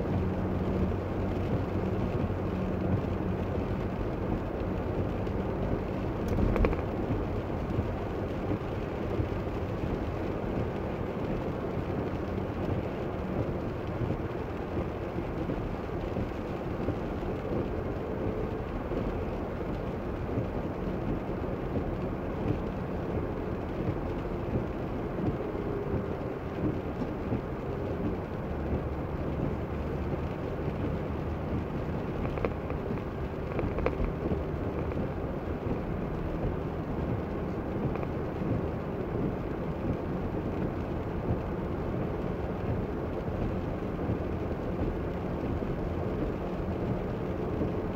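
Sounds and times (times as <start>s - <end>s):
rain noise: 0.0s - 47.9s
tyres rumbling on wet road: 0.0s - 47.9s.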